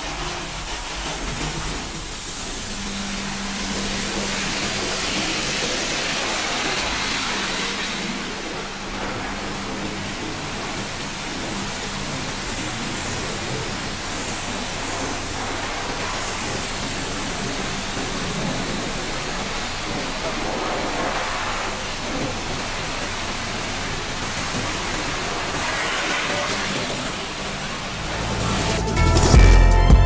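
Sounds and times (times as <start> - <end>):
low hum: 1.0 - 20.0, 27.6 - 30.0.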